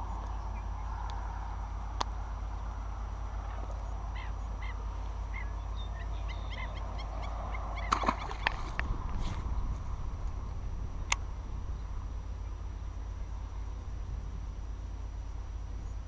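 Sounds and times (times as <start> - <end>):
birds honking calls: 0.0 - 8.8
low rumble: 0.0 - 16.0.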